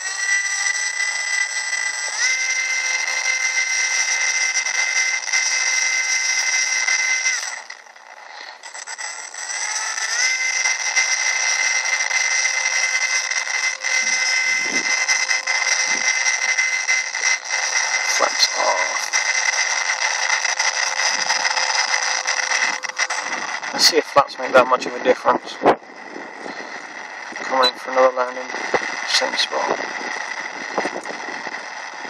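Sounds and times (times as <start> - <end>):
electric motor propeller whine: 0.0 - 32.0
dull low bumps: 28.4 - 32.0.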